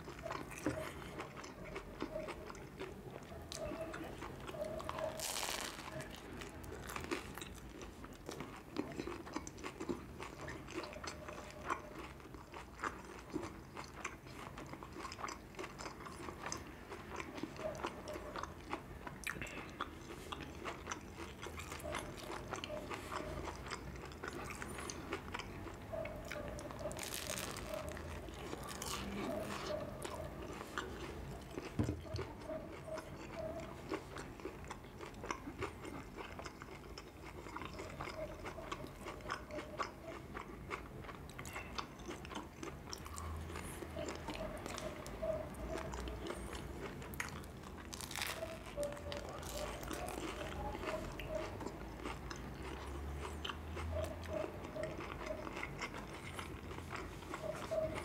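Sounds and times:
chewing with mouth clicks: 0:00.0 - 0:58.0
crunchy bites: 0:04.2 - 0:10.9, 0:20.3 - 0:38.2, 0:45.8 - 0:54.3.

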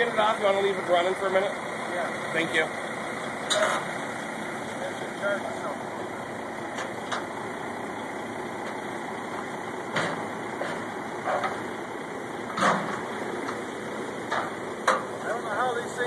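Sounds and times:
car engine idling: 0:00.0 - 0:16.0
metal clanks of car on ramps: 0:03.4 - 0:03.9, 0:09.9 - 0:11.6, 0:12.5 - 0:13.6, 0:14.2 - 0:15.1.

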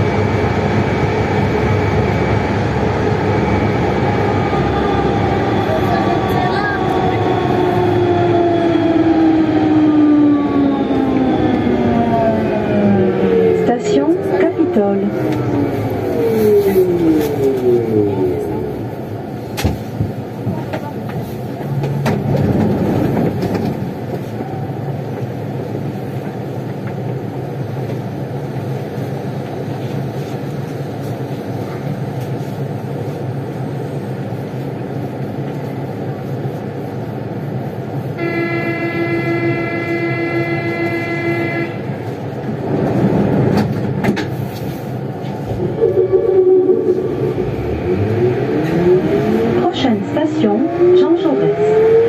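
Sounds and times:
rising whine: 0:00.0 - 0:19.1, 0:45.4 - 0:52.0
train rumbling in tunnel: 0:00.0 - 0:52.0.

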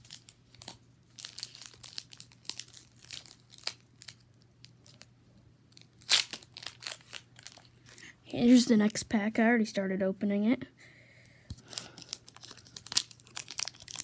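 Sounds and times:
foil wrapper tearing and crinkling: 0:00.0 - 0:05.1, 0:05.7 - 0:07.7, 0:11.6 - 0:14.0.

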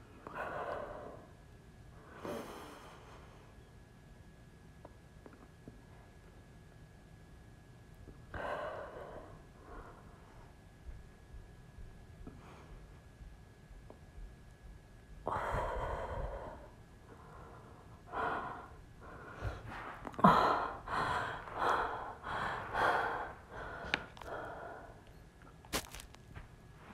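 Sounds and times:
woman breathing hard: 0:08.3 - 0:10.6, 0:15.3 - 0:25.2.

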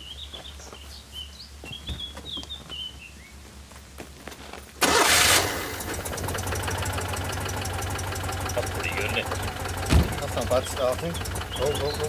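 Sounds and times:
birds chirping: 0:00.0 - 0:03.8, 0:06.2 - 0:12.0
light footsteps: 0:00.0 - 0:04.8
car engine starting: 0:04.8 - 0:12.0.

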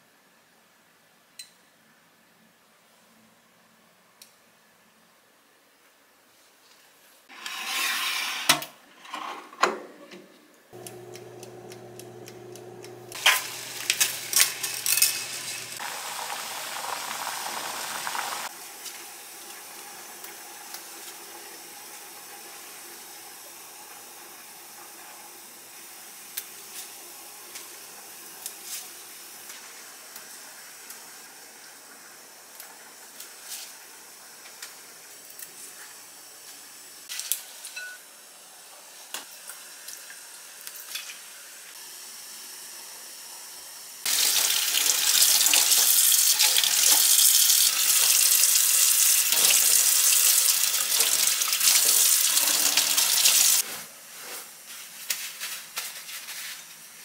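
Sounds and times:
hiss: 0:13.2 - 0:22.1.

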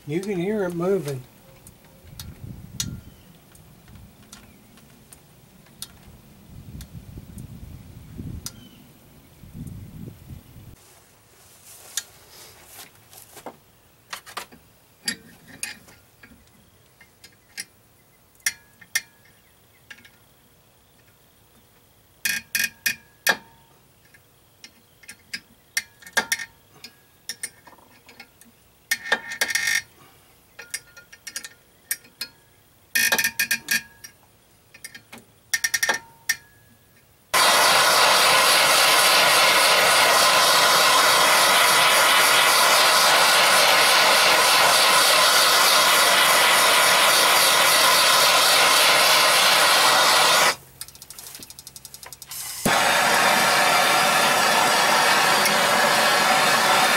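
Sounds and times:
gas torch hissing: 0:37.4 - 0:50.6, 0:52.3 - 0:56.9.

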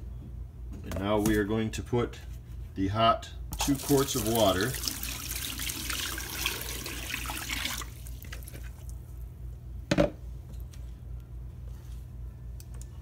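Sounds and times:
hot water pouring into sink: 0:03.6 - 0:08.2.

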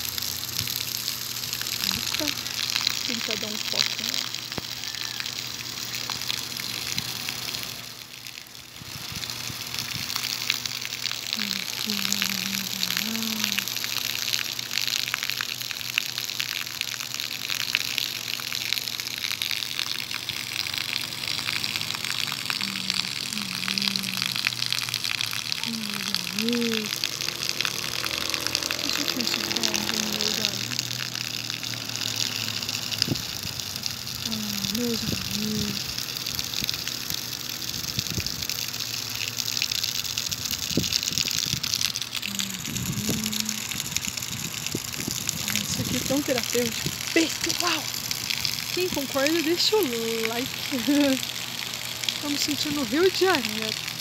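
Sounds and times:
fountain water splashing into pond: 0:00.0 - 0:54.0.

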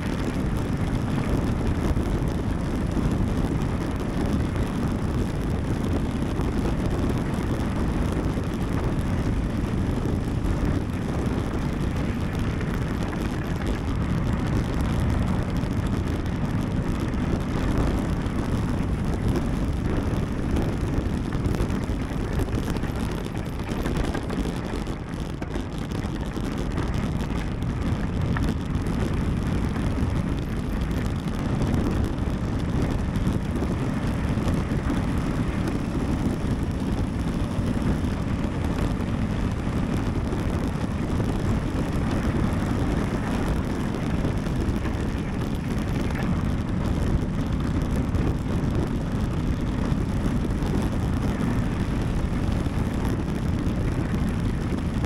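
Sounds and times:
bike tyres rolling downhill: 0:00.0 - 0:55.0
wind noise on microphone: 0:00.0 - 0:55.0.

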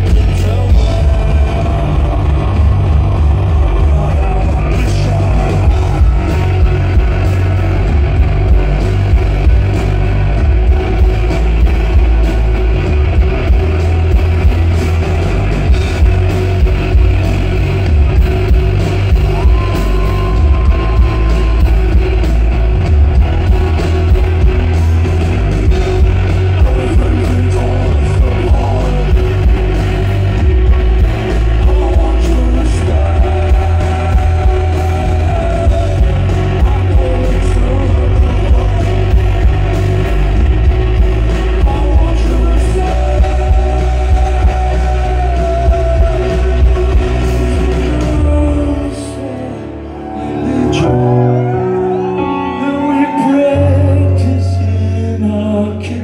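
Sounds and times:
live rock band playing: 0:00.0 - 0:56.0
person singing: 0:00.0 - 0:56.0.

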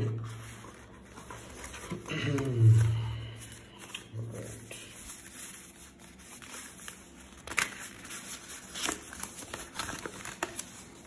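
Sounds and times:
card sleeve rustling and scraping: 0:00.2 - 0:02.1, 0:04.4 - 0:11.0.

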